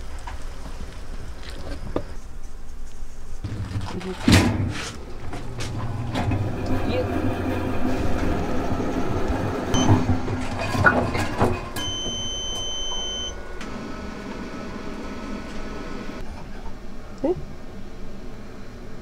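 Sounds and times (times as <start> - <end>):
high beep: 9.8 - 10.0, 11.8 - 13.4.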